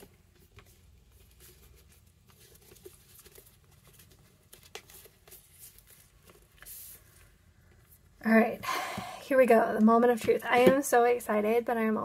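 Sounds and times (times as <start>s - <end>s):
faint rustling of gift box: 0.0s - 8.2s.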